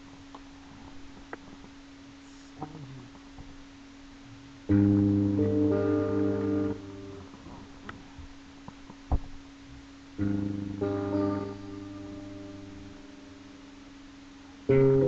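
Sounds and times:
guitar strumming slow chords: 1.0s - 15.0s
sharp tap: 8.7s - 9.4s.

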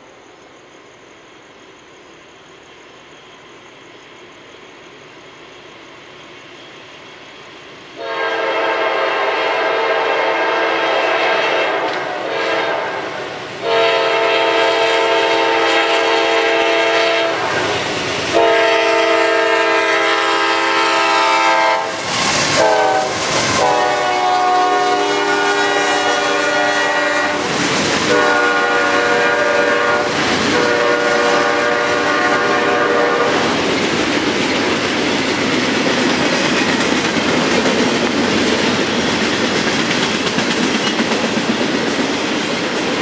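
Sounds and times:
rolling train rumble and clatter: 0.0s - 43.0s
locomotive air horn blasts: 8.0s - 17.6s, 18.3s - 22.0s, 22.6s - 27.5s, 28.1s - 33.5s.

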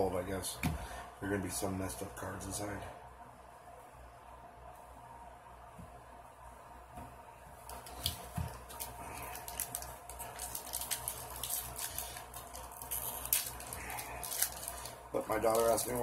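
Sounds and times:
foil wrapper crinkling and tearing: 7.7s - 16.0s.

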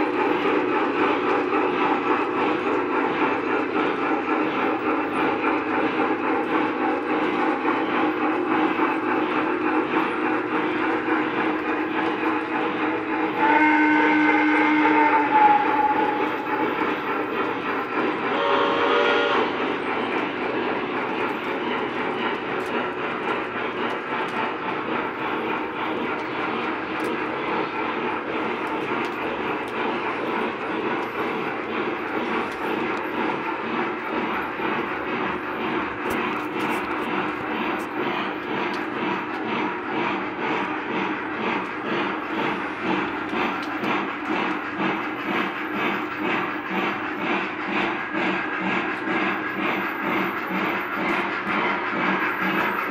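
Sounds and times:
model trains rumbling on track: 0.0s - 52.9s
steam whistle: 13.2s - 16.6s, 18.3s - 19.6s.

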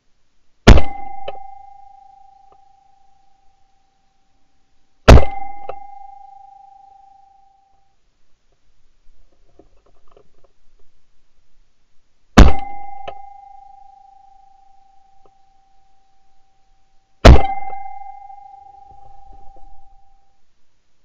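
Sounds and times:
shotgun shots: 0.7s - 1.0s, 5.1s - 5.4s, 12.4s - 12.7s, 17.2s - 17.8s
steady ringing tone: 0.8s - 4.5s, 5.1s - 8.0s, 12.4s - 20.4s.

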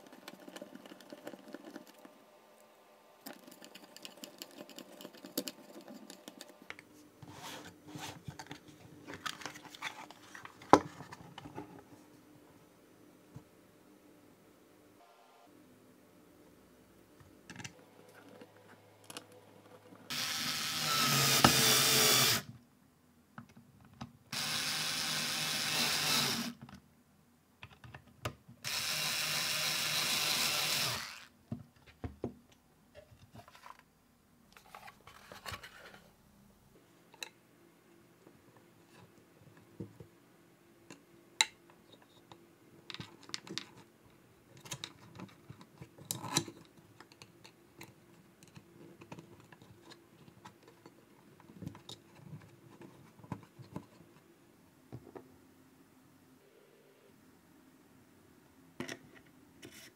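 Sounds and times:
electric screwdriver driving screws: 20.1s - 22.5s, 24.4s - 26.6s, 28.6s - 31.3s
plastic parts clicking and knocking: 27.6s - 28.6s, 41.4s - 43.9s, 44.5s - 53.9s.

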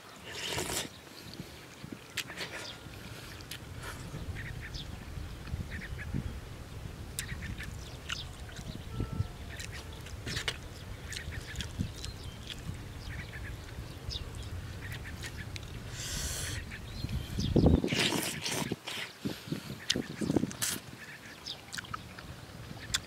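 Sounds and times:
wind on microphone: 0.6s - 23.0s
man chewing and smacking: 2.1s - 4.1s, 8.0s - 8.7s, 9.5s - 12.8s, 19.8s - 20.8s, 21.7s - 22.0s.

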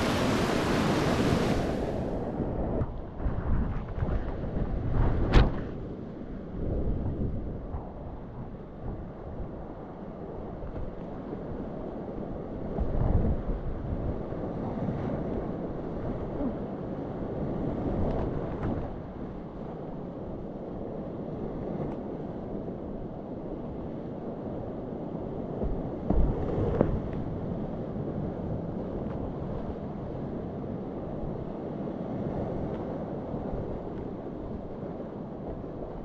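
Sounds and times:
water splashing against boat: 0.0s - 2.2s
river rushing: 0.0s - 2.3s
wind buffeting microphone: 0.0s - 36.0s.

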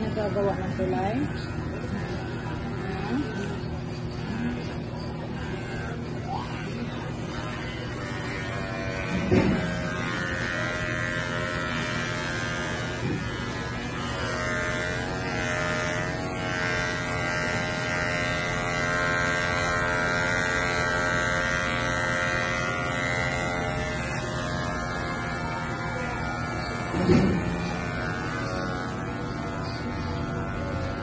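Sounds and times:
electric clippers buzzing: 0.0s - 31.0s.

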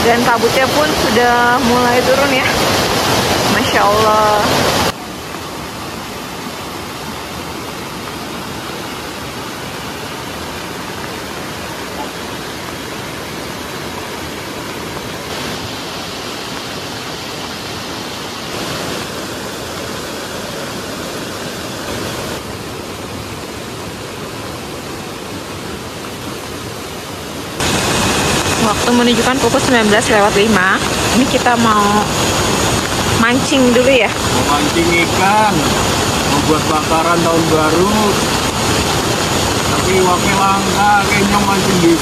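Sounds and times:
river rushing: 0.0s - 42.0s.

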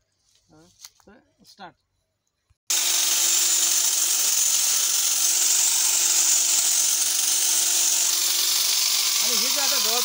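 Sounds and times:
electric hedge trimmer running: 2.7s - 10.0s.

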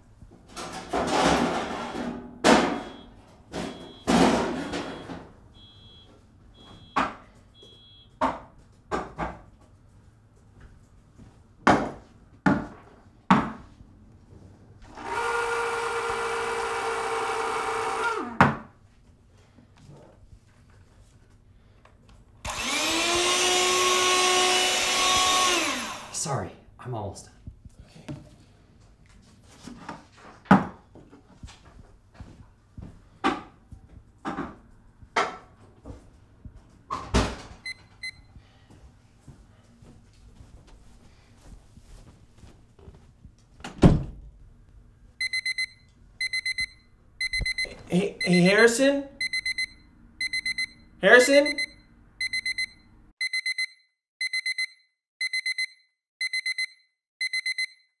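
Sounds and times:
kitchen knocks and bangs: 0.5s - 5.3s, 11.7s - 13.6s, 30.5s - 30.8s
short electronic beeps: 2.8s - 4.1s, 4.7s - 7.0s, 45.2s - 58.0s.

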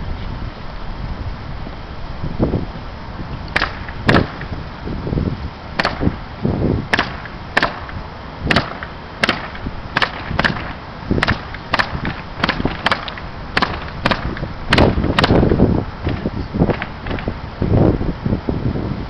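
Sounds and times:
sharp cracks: 3.5s - 4.6s, 5.8s - 6.2s, 6.9s - 17.4s.

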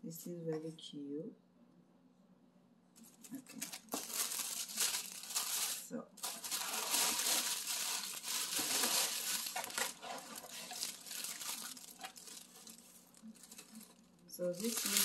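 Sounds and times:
tissue paper crinkling: 3.0s - 15.0s
cardboard box being opened: 6.3s - 12.8s.

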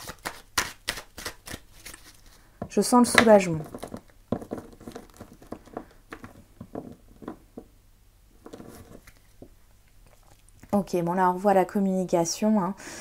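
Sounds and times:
cards being shuffled: 0.0s - 2.4s, 3.0s - 7.4s, 8.4s - 9.5s.

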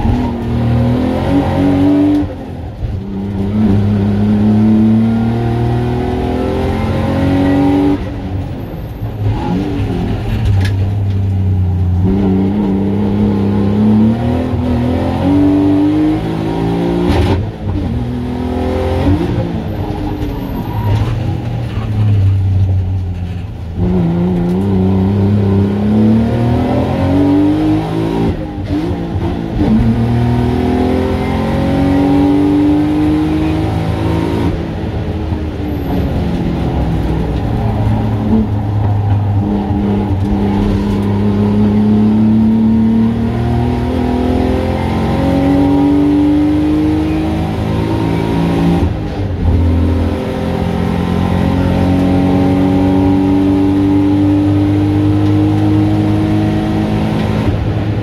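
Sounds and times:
race car engine revving: 0.0s - 58.0s.

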